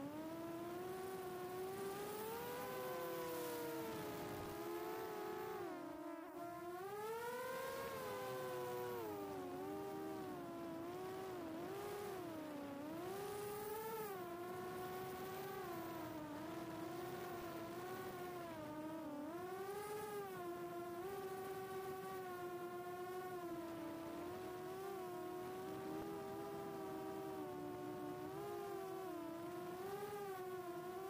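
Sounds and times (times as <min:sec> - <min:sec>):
quadcopter motors whining: 0:00.0 - 0:31.0.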